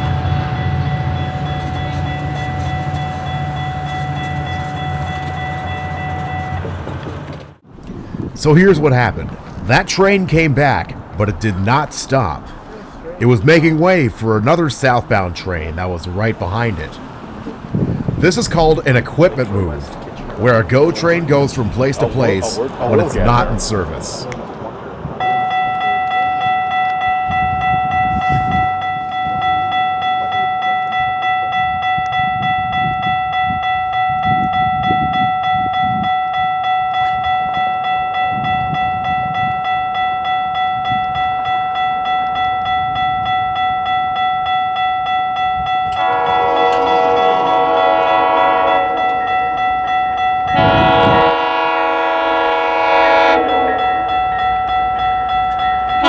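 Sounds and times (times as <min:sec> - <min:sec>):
train rumbling: 0:00.0 - 0:09.8, 0:16.1 - 0:25.3, 0:40.6 - 0:56.0
level crossing bells ringing: 0:20.7 - 0:24.2, 0:25.2 - 0:56.0
train horn blasts: 0:45.9 - 0:49.5, 0:50.5 - 0:54.3.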